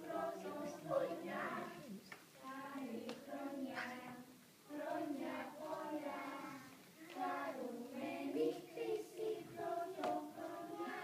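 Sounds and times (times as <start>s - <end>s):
children singing: 0.0s - 11.0s.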